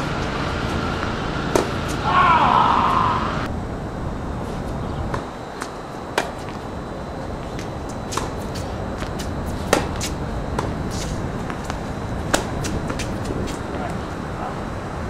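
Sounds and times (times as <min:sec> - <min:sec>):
tennis balls struck by rackets: 0:01.0 - 0:02.1, 0:05.1 - 0:06.7, 0:07.5 - 0:14.1.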